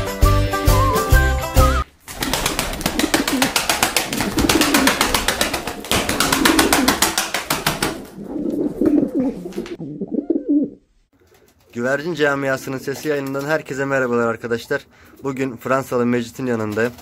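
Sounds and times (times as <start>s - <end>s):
pigeons cooing: 8.1s - 10.8s.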